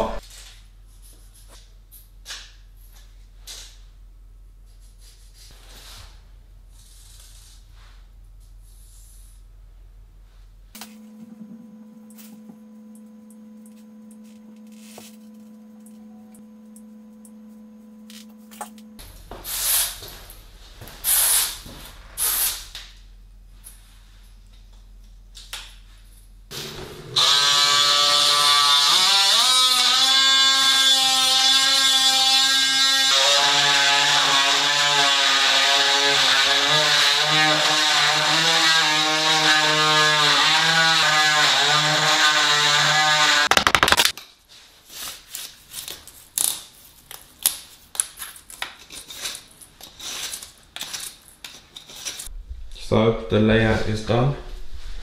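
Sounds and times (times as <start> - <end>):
power tool motor running: 26.5 - 43.5.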